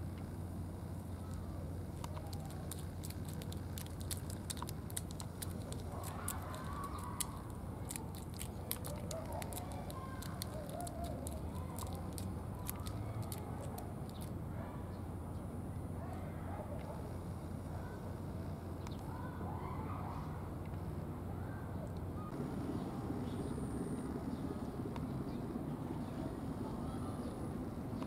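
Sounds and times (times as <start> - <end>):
cat scratching bark: 2.0 - 14.3.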